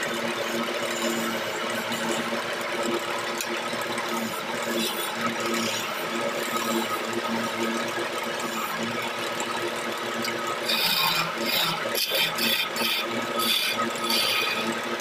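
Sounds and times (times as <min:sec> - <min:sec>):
chisel scraping spinning wood: 0:00.0 - 0:15.0
wood lathe motor hum: 0:00.0 - 0:15.0.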